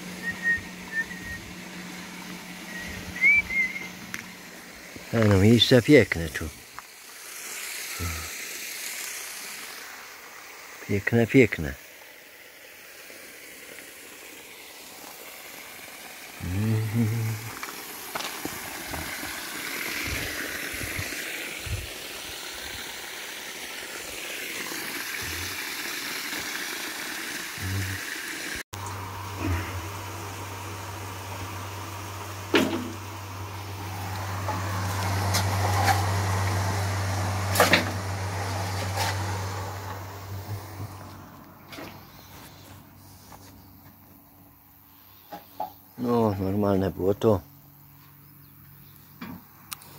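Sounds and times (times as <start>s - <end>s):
low motor hum: 0.0s - 7.2s, 15.8s - 22.9s, 24.0s - 25.6s, 28.8s - 44.6s
water gushing from hose: 0.0s - 42.6s.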